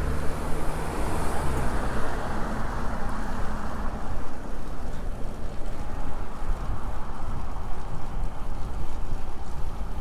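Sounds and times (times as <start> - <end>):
street traffic: 0.0 - 10.0
wind rumble on microphone: 0.0 - 10.0.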